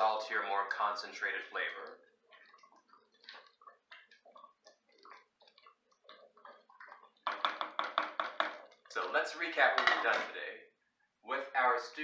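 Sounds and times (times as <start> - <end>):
wooden spoon scraping a pot: 1.6 - 10.3.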